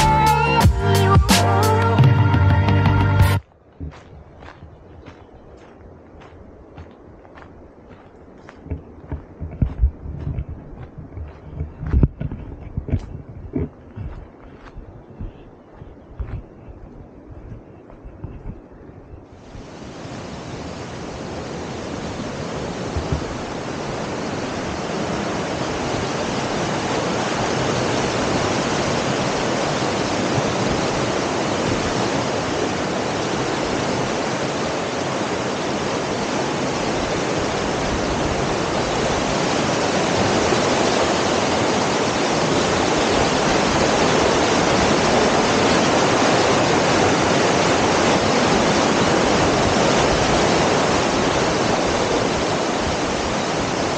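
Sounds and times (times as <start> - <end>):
waterfall rushing: 19.4 - 53.9.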